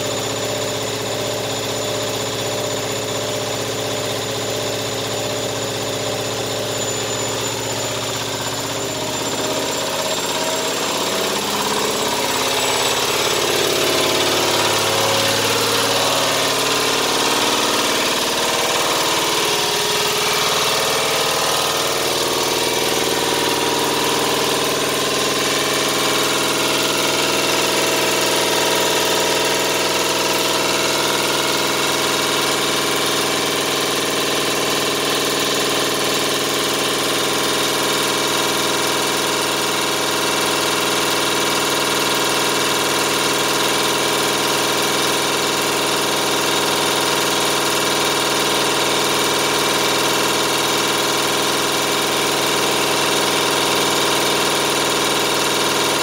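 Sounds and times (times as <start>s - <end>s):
washing machine spinning: 0.0s - 56.0s.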